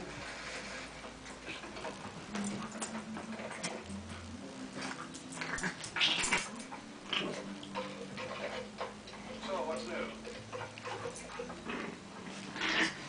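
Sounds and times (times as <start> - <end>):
dog growling: 1.5 - 8.8, 10.2 - 13.0.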